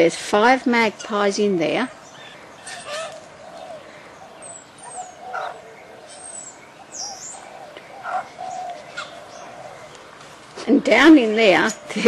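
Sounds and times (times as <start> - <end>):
birds whistling and chirping: 1.9 - 9.9
low wavering bird call: 1.9 - 10.0.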